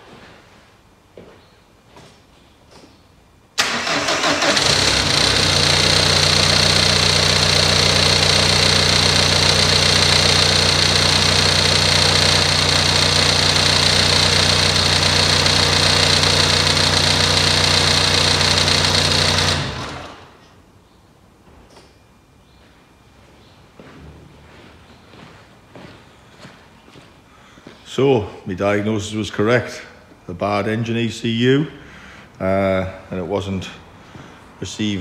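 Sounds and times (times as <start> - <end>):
diesel engine cranking and idling: 3.6 - 20.4.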